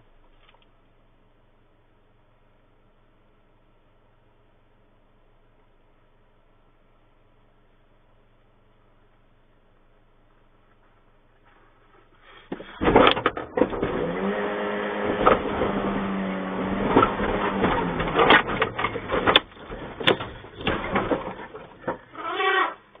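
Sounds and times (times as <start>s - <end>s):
sheet metal bangs and crunches: 12.5s - 14.2s, 15.0s - 22.6s.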